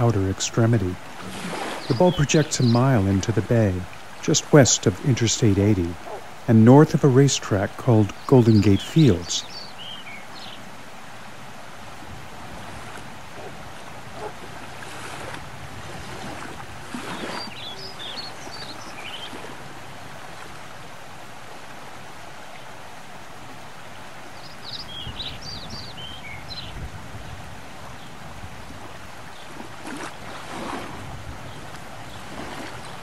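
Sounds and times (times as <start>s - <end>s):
water rushing: 0.0s - 33.0s
wind: 0.0s - 33.0s
small birds chirping: 1.5s - 6.3s, 7.2s - 10.6s, 17.1s - 19.4s, 24.4s - 27.4s.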